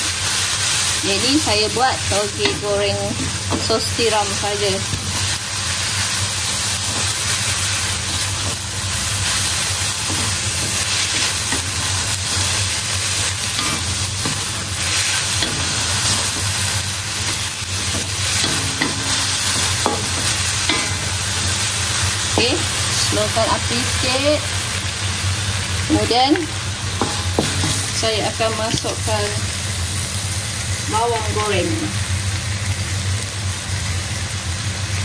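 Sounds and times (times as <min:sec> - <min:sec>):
bean sprouts sizzling in a pan: 0:00.0 - 0:35.0
spatula stirring: 0:02.4 - 0:23.0.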